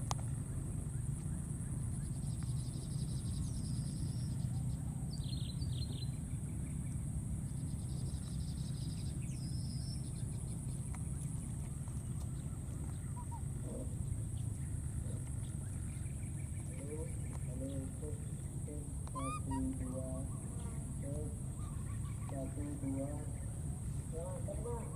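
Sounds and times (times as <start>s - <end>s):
short high chirps: 19.1s - 19.6s.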